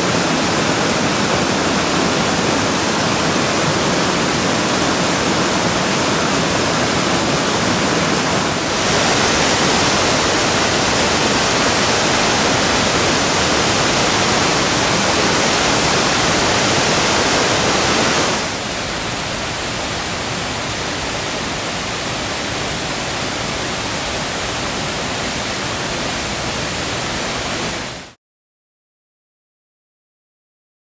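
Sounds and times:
stream water rushing: 0.0s - 28.2s.

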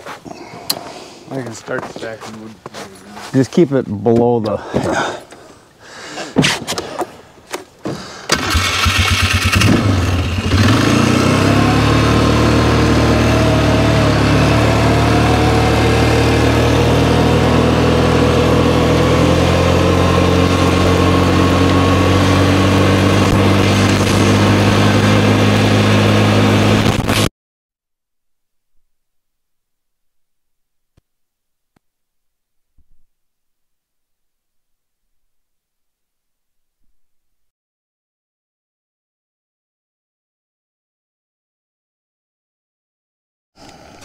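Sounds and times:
engine starting and running: 8.3s - 27.3s.

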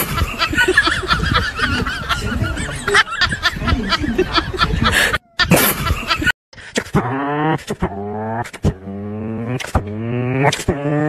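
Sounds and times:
car engine revving: 7.0s - 11.0s.

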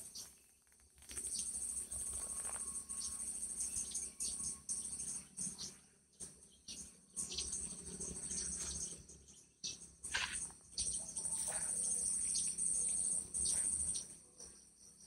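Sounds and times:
insects droning: 1.1s - 15.0s
short insect chirps: 10.0s - 15.0s.

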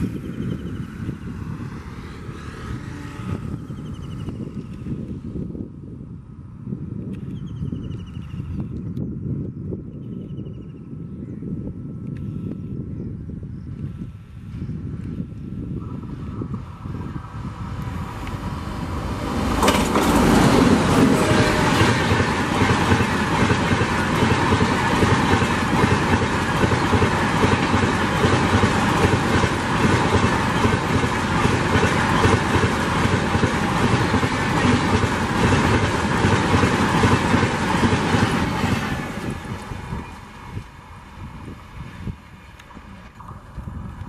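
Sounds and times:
train passing at speed: 0.0s - 5.4s, 14.2s - 44.0s
wheels clattering on rail: 17.9s - 40.8s.

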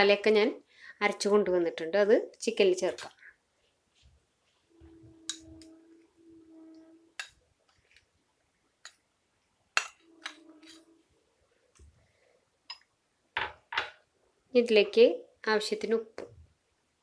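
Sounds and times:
low humming tone: 4.8s - 7.2s.

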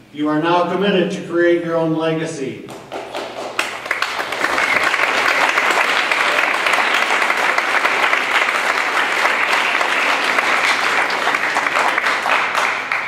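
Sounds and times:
audience applauding: 2.7s - 13.0s.

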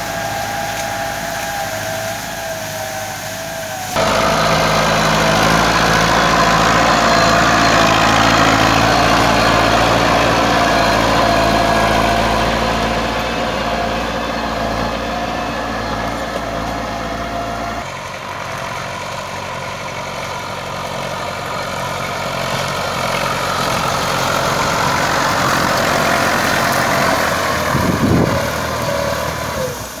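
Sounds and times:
tractor diesel engine running: 0.0s - 30.0s.

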